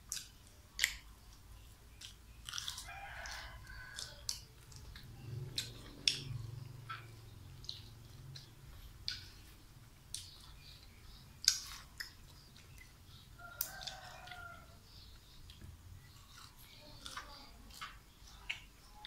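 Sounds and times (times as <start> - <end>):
mouth clicks and smacks: 0.0 - 2.9, 4.0 - 13.0
person chewing food: 0.0 - 19.0
rooster crowing: 2.8 - 4.3.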